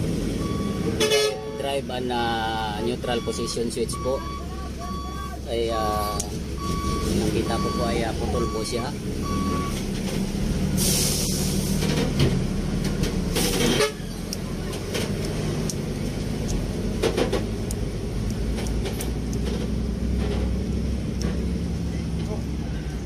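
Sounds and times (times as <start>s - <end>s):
vehicle engine idling: 0.0s - 23.0s
short high beep: 2.8s - 5.4s
brief bursts of hiss: 10.7s - 11.8s.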